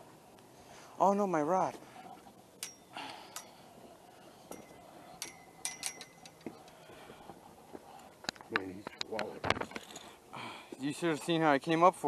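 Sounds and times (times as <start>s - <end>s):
footsteps on wooden planks: 6.4s - 8.6s.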